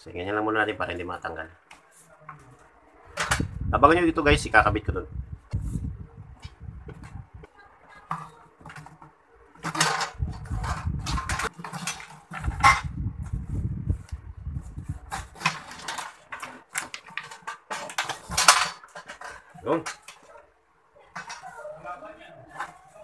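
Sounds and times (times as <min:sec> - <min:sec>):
plastic conduit rattling and scraping: 0:05.5 - 0:20.4, 0:21.0 - 0:23.0.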